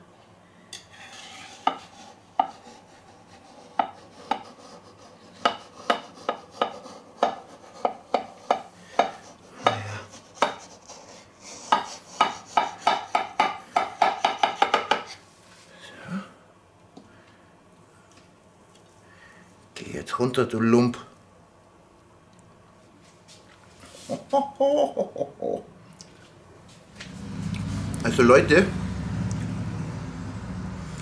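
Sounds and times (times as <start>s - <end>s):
knife scraping metal cake ring: 0.8s - 8.6s.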